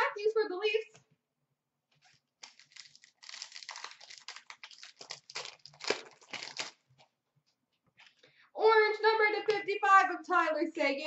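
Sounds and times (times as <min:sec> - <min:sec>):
trading cards rustling and flicking: 0:01.9 - 0:07.1.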